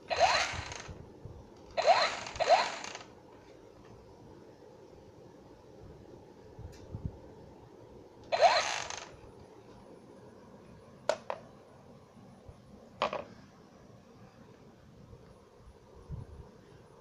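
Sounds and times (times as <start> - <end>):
toy knocking on wooden floor: 13.0 - 13.3.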